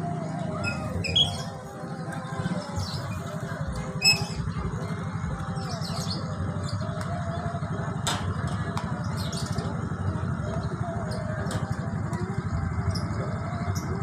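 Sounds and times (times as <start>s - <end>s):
motorcycle engine idling: 0.0s - 14.0s
birds chirping: 0.4s - 11.3s.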